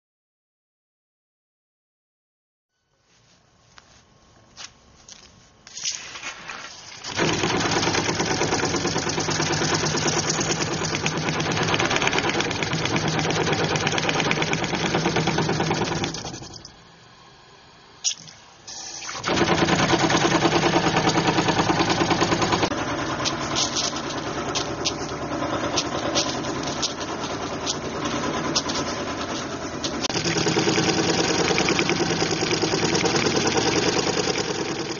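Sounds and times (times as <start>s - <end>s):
water pipes hammering: 7.1s - 16.7s, 29.8s - 34.9s.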